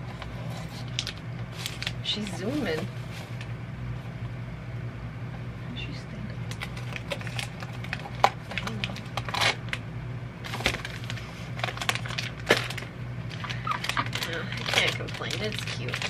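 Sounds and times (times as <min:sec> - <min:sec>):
steady low hum: 0:00.0 - 0:16.0
plastic wrappers crinkling: 0:00.5 - 0:03.5, 0:06.5 - 0:09.8, 0:10.4 - 0:16.0.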